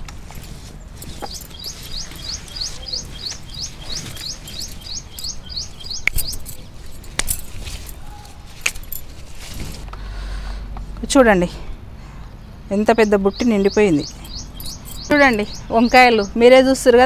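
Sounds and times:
small bird chirping: 0:01.0 - 0:07.1, 0:12.8 - 0:16.6.

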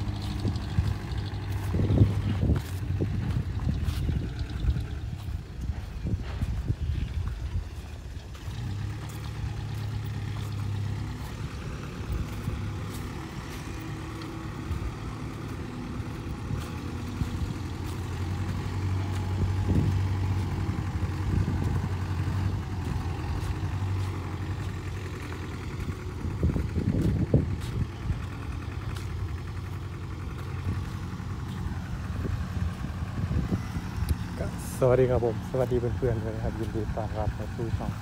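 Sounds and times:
footsteps crunching on dirt: 0:00.0 - 0:38.0
heavy diesel engine running: 0:00.0 - 0:38.0.

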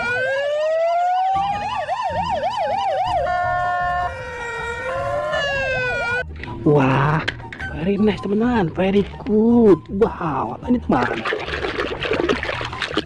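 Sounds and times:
ambulance siren: 0:00.0 - 0:06.3.

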